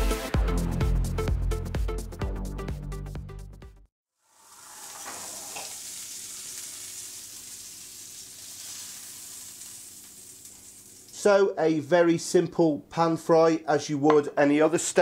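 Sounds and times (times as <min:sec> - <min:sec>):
steaks sizzling in butter: 0:04.2 - 0:11.2.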